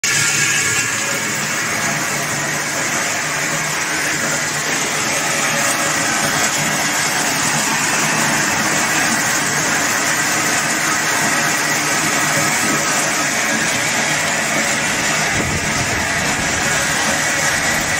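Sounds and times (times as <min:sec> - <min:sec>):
shelling machine running: 0:00.0 - 0:17.9.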